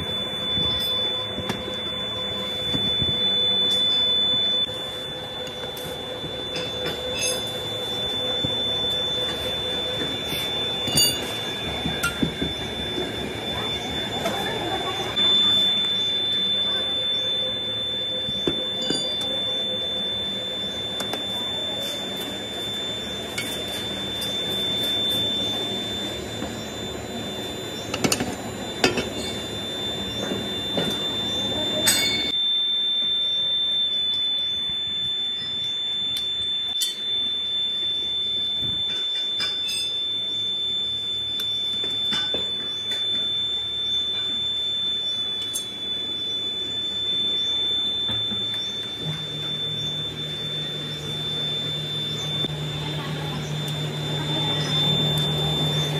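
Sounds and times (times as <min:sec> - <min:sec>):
high-pitched whine: 0:00.0 - 0:55.9
workshop din: 0:00.0 - 0:55.9.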